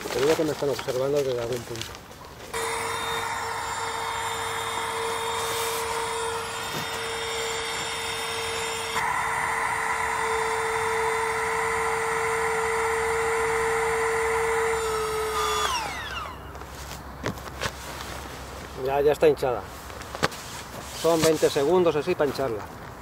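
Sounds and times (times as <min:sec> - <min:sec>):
electric air pump running: 0:02.5 - 0:17.0.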